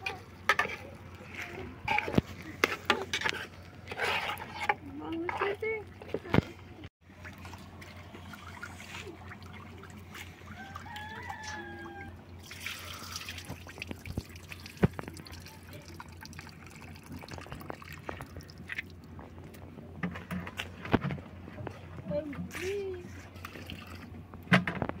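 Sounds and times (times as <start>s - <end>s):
wet peas rubbed in metal pot: 0.6s - 5.7s
water splashing onto ground: 7.1s - 19.2s
water dripping: 11.9s - 19.2s.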